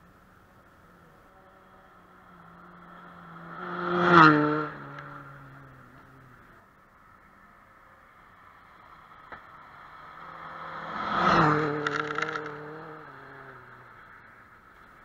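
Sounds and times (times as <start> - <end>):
rally car engine passing: 0.9 - 6.6, 8.6 - 14.4.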